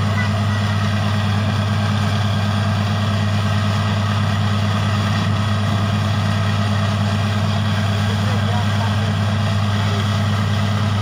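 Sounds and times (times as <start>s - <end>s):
drilling rig engine drone: 0.0s - 11.0s.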